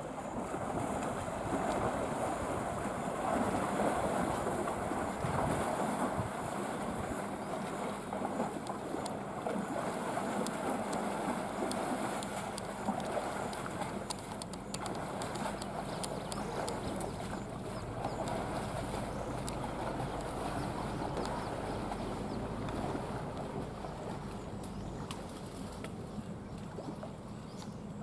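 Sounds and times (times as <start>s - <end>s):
wind buffeting microphone: 0.0s - 9.0s, 14.7s - 27.5s
water splashing and sloshing: 0.0s - 28.0s
sharp splashes: 0.4s - 26.0s.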